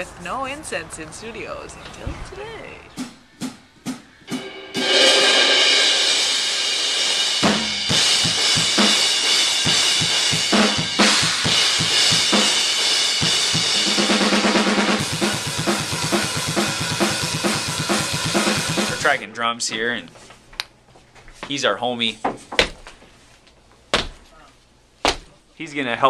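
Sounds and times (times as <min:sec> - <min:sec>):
crashing cymbals: 0:04.3 - 0:19.2
kick drum and snare groove: 0:07.4 - 0:12.6, 0:13.2 - 0:19.2.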